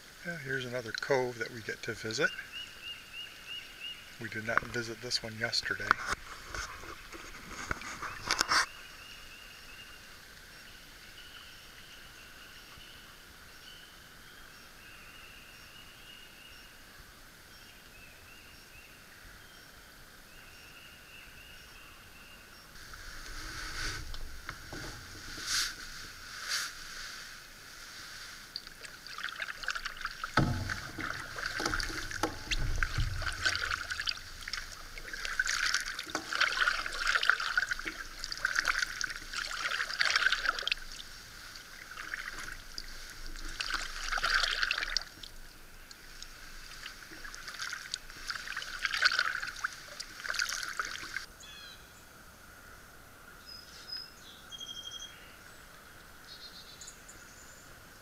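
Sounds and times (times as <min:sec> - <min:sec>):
paddle strokes in water: 0:04.3 - 0:09.8, 0:22.8 - 0:51.3
paddle knocking against hull: 0:24.1 - 0:25.8, 0:29.7 - 0:40.7.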